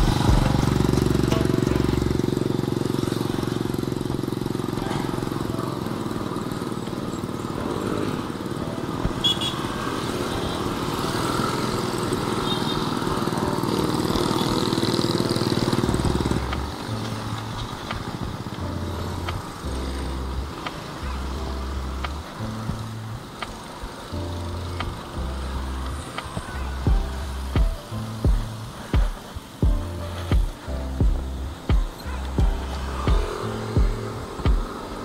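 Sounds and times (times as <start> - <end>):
music with low bass line: 0.0 - 2.9, 15.8 - 34.9
small motorcycle engine running: 0.0 - 35.0.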